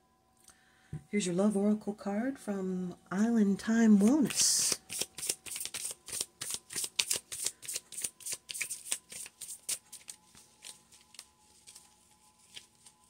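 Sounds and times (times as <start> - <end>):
cards being shuffled: 4.0 - 13.0.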